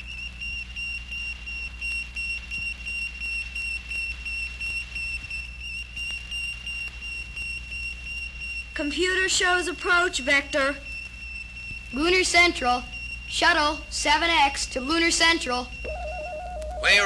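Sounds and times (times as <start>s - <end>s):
electronic whistle-like tone: 15.7s - 17.0s.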